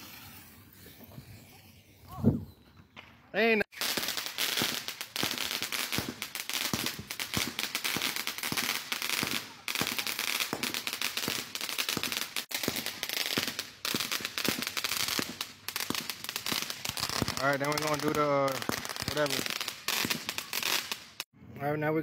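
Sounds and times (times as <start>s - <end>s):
firework crackling pops: 3.7s - 21.3s.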